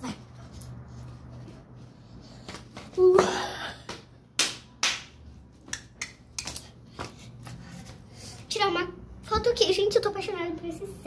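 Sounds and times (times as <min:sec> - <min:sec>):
sharp slaps: 0:03.9 - 0:07.2.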